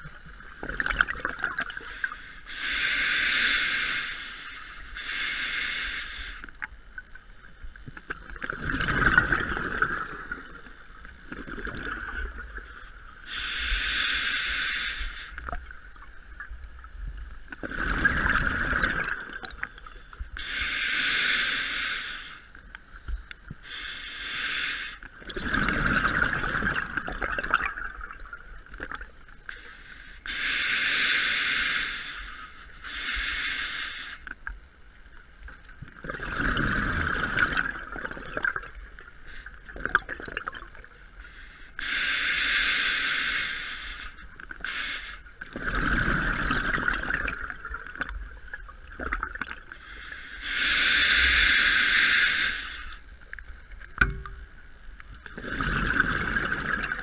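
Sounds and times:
gurgling exhaled bubbles: 0.0 - 1.9, 7.9 - 12.8, 17.5 - 19.9, 25.2 - 29.1, 35.8 - 40.9, 45.4 - 49.8, 55.2 - 57.0
scuba regulator breathing hiss: 1.7 - 6.7, 12.7 - 15.6, 20.3 - 23.0, 23.6 - 25.1, 29.5 - 34.6, 41.1 - 45.5, 49.8 - 53.2.

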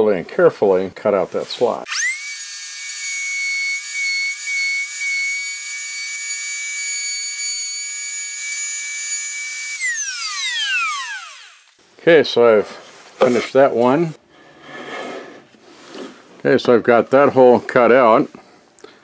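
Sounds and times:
router motor spinning down: 1.9 - 11.8
router whining: 1.9 - 11.8.

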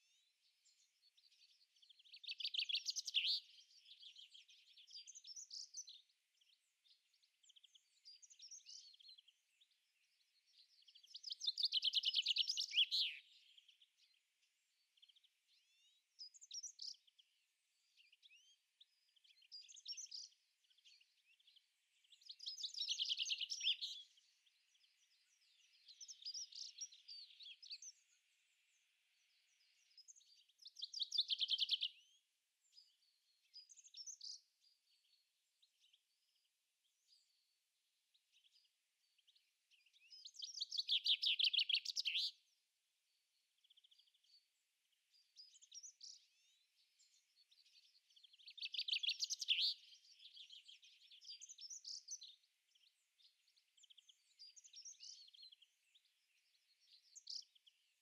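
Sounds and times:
songbird trilling song: 0.0 - 58.0
high bird chirps and calls: 40.2 - 42.4, 48.2 - 52.2.

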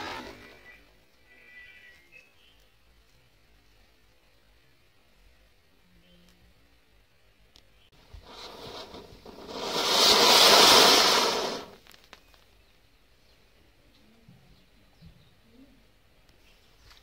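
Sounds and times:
firework hissing sparks: 0.0 - 0.7, 8.0 - 12.2.

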